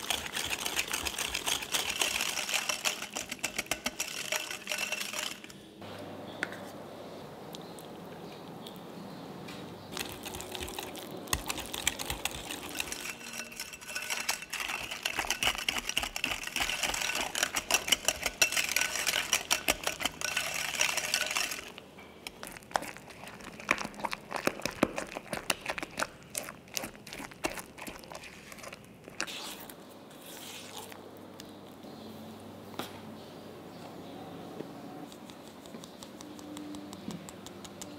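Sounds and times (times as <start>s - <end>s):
whisk clicking against glass bowl: 0.0s - 5.5s, 10.0s - 21.7s.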